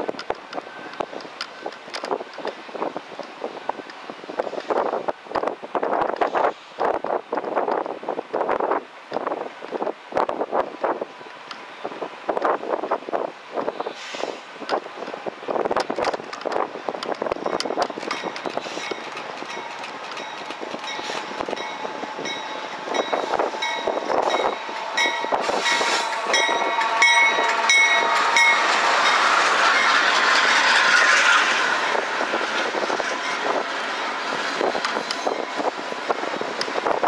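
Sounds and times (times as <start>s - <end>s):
locomotive engines rumbling: 9.0s - 37.0s
train wheels clacking: 14.1s - 37.0s.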